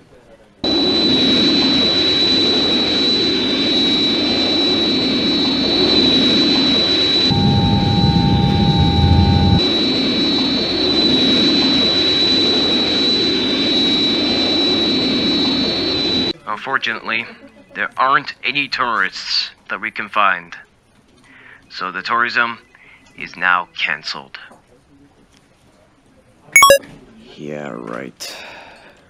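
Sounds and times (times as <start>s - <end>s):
jet engine whining: 0.7s - 9.6s.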